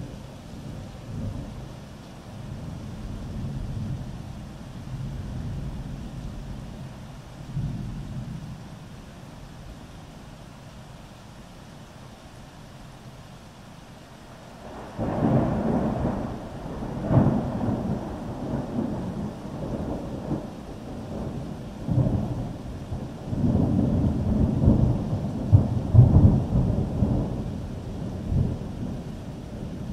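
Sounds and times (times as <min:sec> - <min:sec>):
thunder rumbling: 0:14.6 - 0:29.9.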